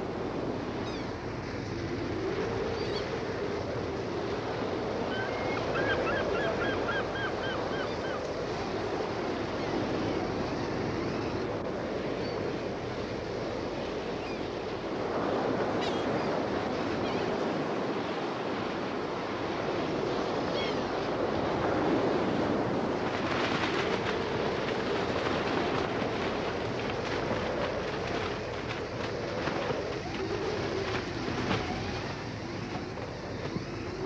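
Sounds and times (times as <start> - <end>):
rough surf breaking: 0.0 - 34.0
wind blowing: 0.0 - 34.0
bird calling: 5.1 - 8.2.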